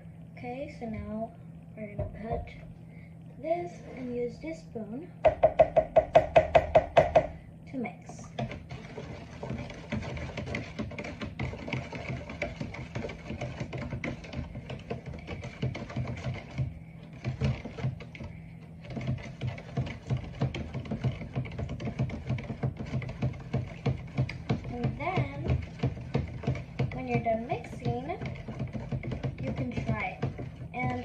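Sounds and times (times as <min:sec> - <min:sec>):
spoon scraping plastic bowl: 0:08.2 - 0:31.0.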